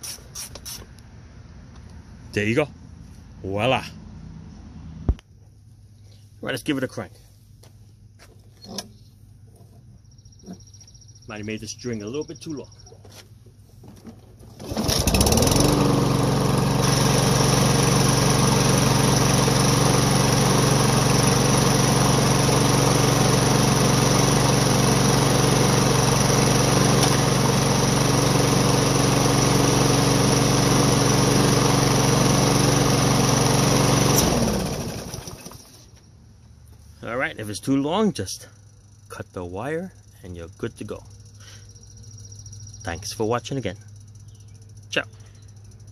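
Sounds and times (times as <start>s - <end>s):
lawn mower engine running: 13.1s - 45.9s
recoil starter rope pull: 14.4s - 21.2s, 21.8s - 35.8s.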